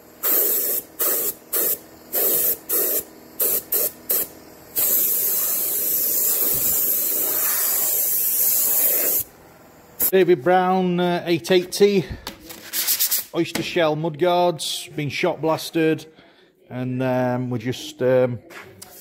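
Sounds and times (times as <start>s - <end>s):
paint spray gun hissing: 0.2s - 9.3s.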